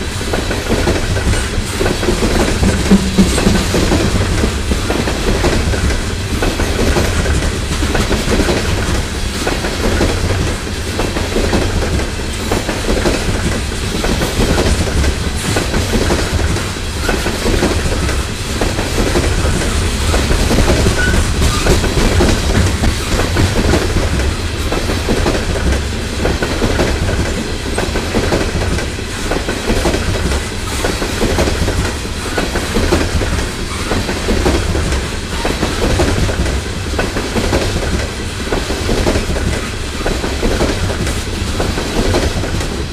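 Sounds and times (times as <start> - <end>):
train wheels rumbling on rail: 0.0 - 42.9
wheels clacking over rail joints: 0.0 - 42.9.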